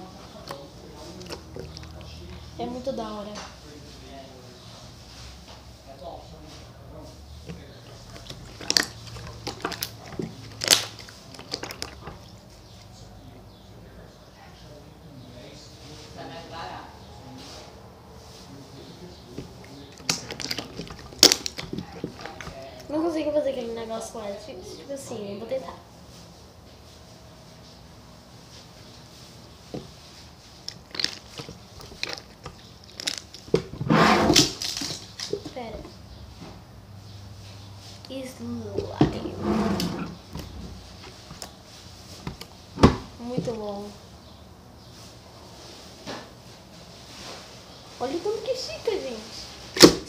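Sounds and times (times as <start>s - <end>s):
slime squish: 0.2s - 2.5s, 7.4s - 12.9s, 19.4s - 22.9s, 29.9s - 35.6s.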